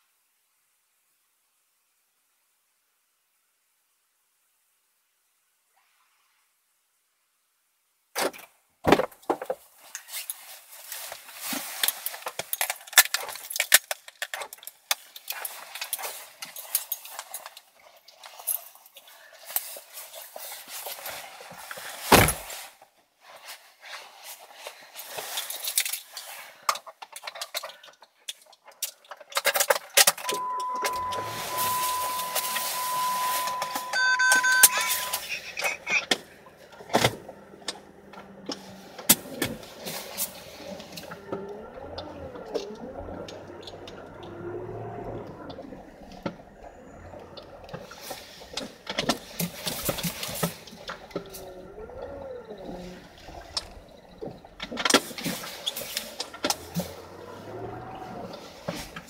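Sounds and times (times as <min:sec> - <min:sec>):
handling clicks and rustling: 0:08.2 - 0:59.0
car electronic chime beeping: 0:30.2 - 0:38.5
low steady hum: 0:30.2 - 0:59.0.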